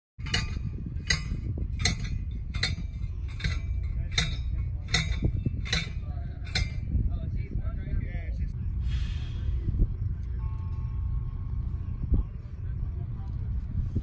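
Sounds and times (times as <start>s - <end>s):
sharp metallic clicks: 0.2s - 7.0s
wind rumble on microphone: 0.2s - 14.0s.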